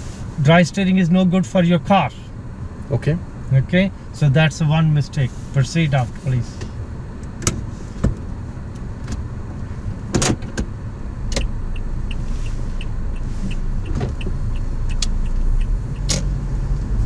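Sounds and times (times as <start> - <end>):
car engine running: 0.0 - 17.0
turn signal ticking: 8.6 - 17.0.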